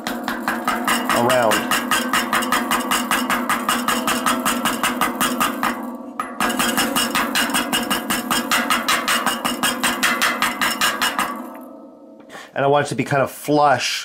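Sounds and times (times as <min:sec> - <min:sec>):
hammer tapping on metal: 0:00.0 - 0:11.7
low hum: 0:11.3 - 0:12.3.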